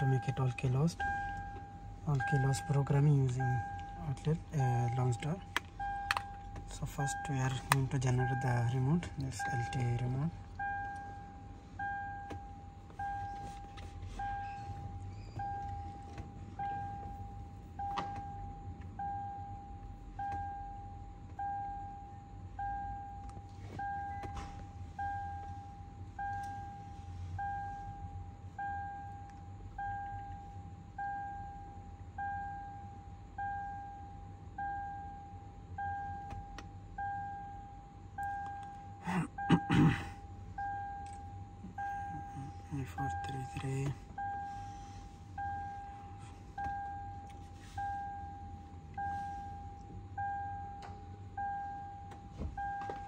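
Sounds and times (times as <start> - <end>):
electronic warning chime beeping: 0.0 - 12.4.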